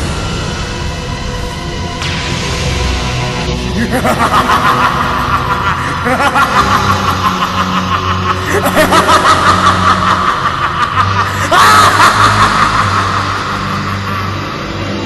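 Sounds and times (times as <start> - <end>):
dark dramatic music: 0.0 - 15.0
cartoon villain evil laugh: 3.8 - 15.0.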